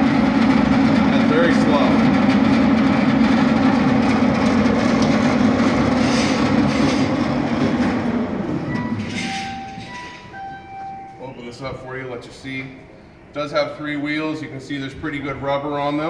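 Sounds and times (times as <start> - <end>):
bandsaw running hum: 0.0 - 8.6.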